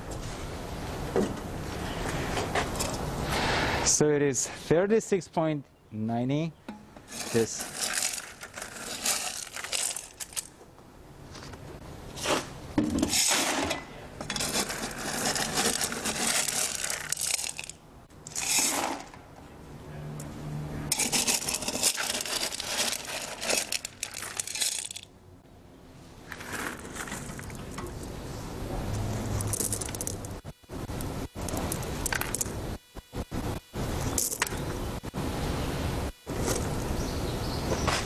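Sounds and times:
gravel scraping and clattering: 7.0 - 10.5, 11.3 - 19.2, 20.9 - 25.1, 26.2 - 28.1, 28.9 - 30.4, 36.2 - 36.9.

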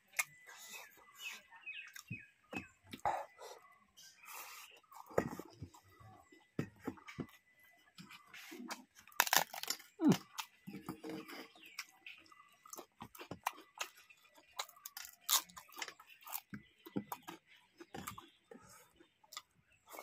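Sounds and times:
chewing and crunching: 0.0 - 20.0
crisp wafer crackling: 9.1 - 10.2.

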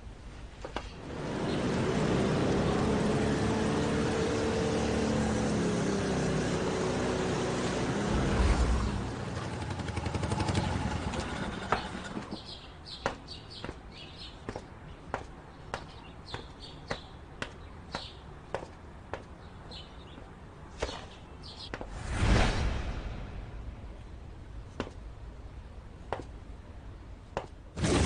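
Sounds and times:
motorcycle engines running: 1.0 - 12.4
footsteps on pavement: 11.7 - 21.9.

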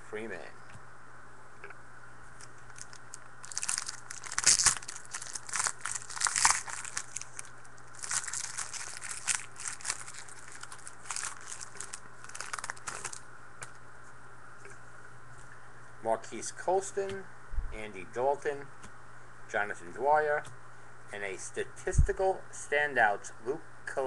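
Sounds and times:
foil wrapper tearing and crinkling: 2.7 - 13.2.

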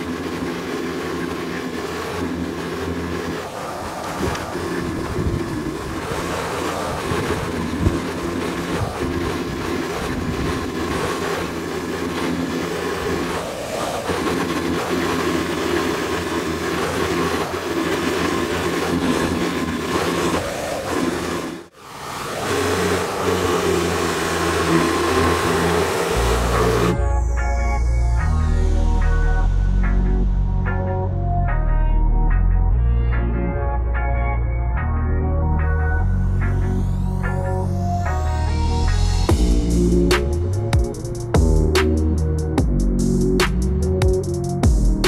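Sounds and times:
pressure washer droning: 0.0 - 27.2, 36.5 - 45.0
water spray hissing: 18.2 - 27.0.

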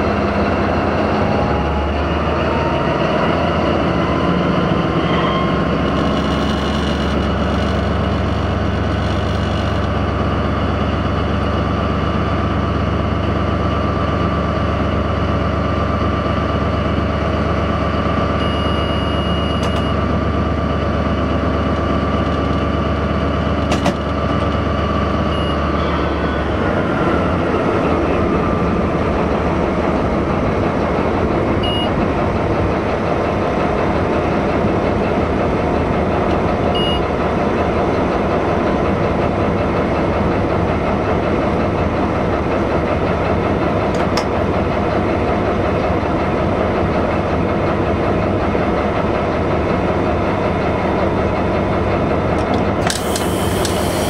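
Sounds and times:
locomotive engine rumbling: 0.0 - 54.0
whining tone sliding down: 1.2 - 9.9
faint short beeps: 18.4 - 20.0, 25.3 - 25.7, 36.8 - 37.0
click: 52.4 - 53.8.

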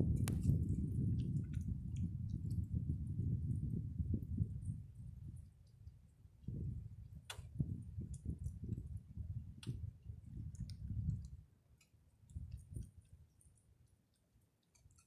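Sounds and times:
low bumps and rumble: 0.0 - 5.7, 6.4 - 11.4.

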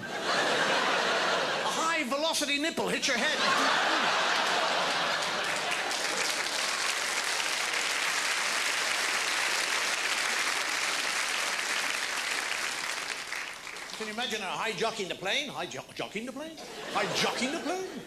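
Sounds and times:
audience applauding: 3.6 - 14.4.

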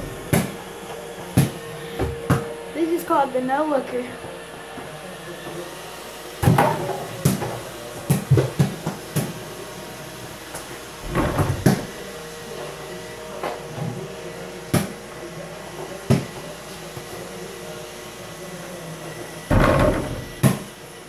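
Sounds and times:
ball bouncing on hard floor: 1.4 - 2.5, 11.1 - 11.8
ball knocking against hoop: 11.0 - 11.9.

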